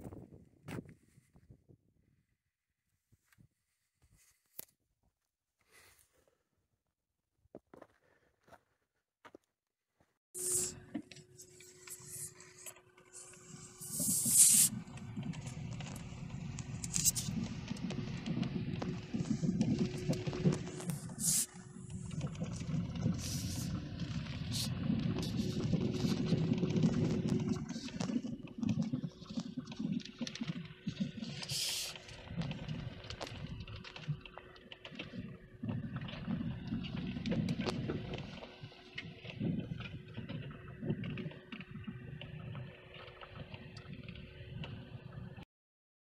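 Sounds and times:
faint hum: 10.4 - 45.4
tyres and suspension rumbling: 12.9 - 45.2
brief hiss: 13.8 - 14.7.

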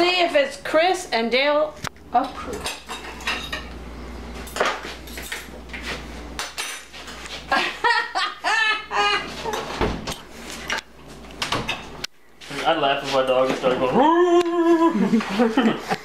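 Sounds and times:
cutlery clinking on plates: 2.6 - 3.7.

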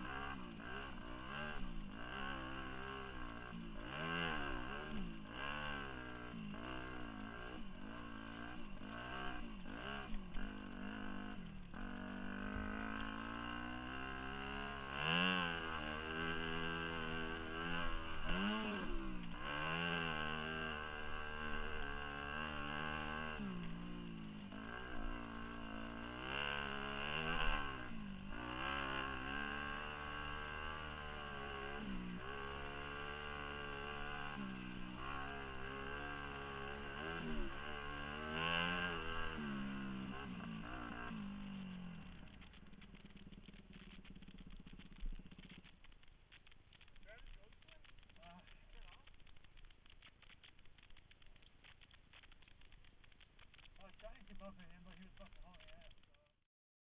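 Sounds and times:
dirt bike engine revving: 0.0 - 56.3.

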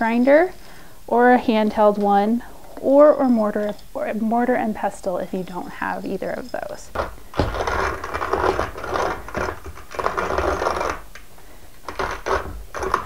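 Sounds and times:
hand coffee mill grinding: 6.7 - 11.2, 11.8 - 13.0.

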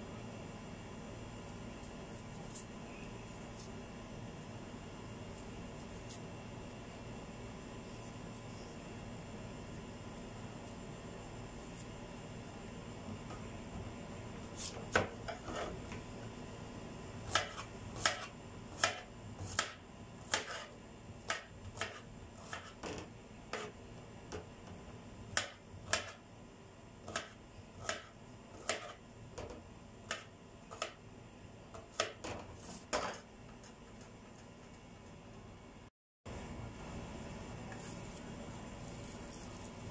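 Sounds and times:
knife chopping on cutting board: 14.5 - 15.8, 17.2 - 24.4, 25.3 - 26.2, 27.0 - 31.0, 31.8 - 33.2.

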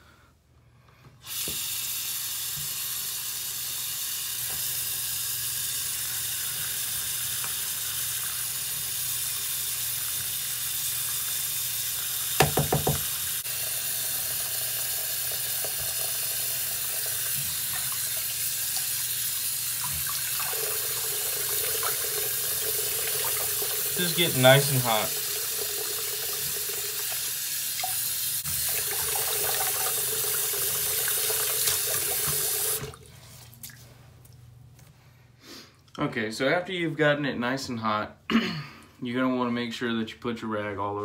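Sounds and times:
faucet running into sink: 1.3 - 33.0.

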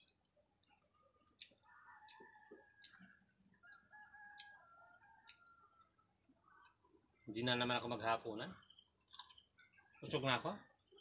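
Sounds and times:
rooster crowing: 1.7 - 6.0.

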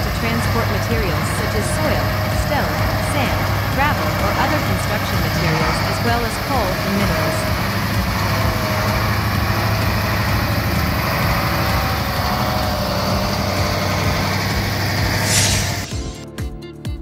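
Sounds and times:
diesel truck engine running: 0.0 - 16.3
short whoosh: 15.1 - 16.2.

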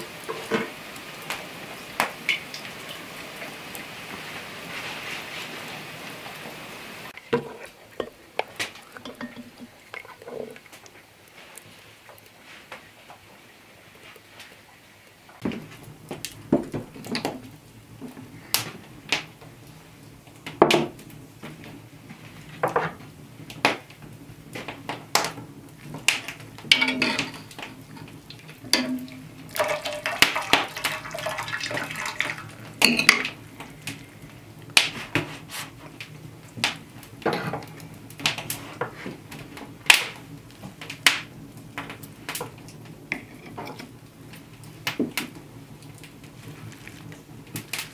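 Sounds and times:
water dripping and splashing: 0.0 - 7.2, 8.4 - 12.4, 25.9 - 34.9
metal hook and pot clinking: 26.8 - 27.6, 28.7 - 29.2.

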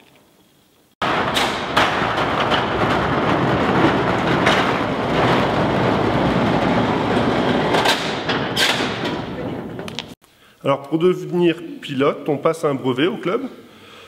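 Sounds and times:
metal door clanks: 1.0 - 10.2
metal sliding door rolling: 1.0 - 10.2.

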